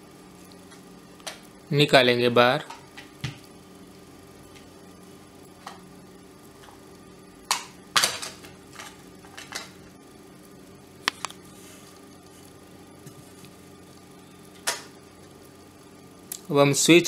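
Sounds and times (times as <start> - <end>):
plastic clicks and cracks: 11.1 - 11.4.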